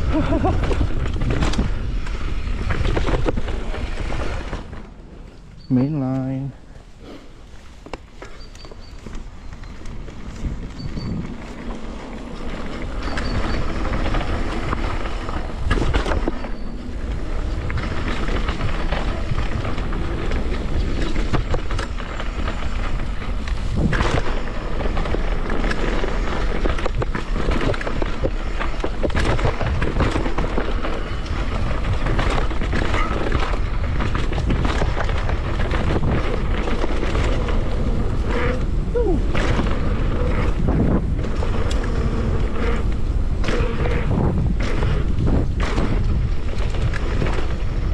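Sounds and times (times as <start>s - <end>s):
wind rushing on microphone: 0.0s - 4.7s, 9.6s - 47.9s
bike rattling and knocking: 0.0s - 5.0s, 7.8s - 47.9s
tyre noise: 0.0s - 47.9s.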